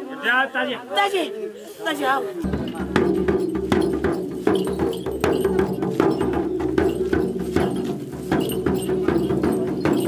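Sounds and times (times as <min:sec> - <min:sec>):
frame drum beating: 0:02.4 - 0:10.0.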